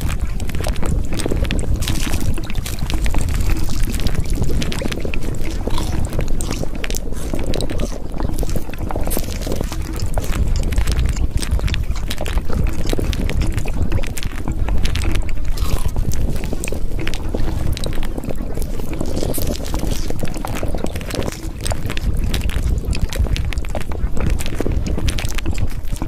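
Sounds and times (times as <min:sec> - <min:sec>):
rushing water with splashes: 0:00.0 - 0:26.0.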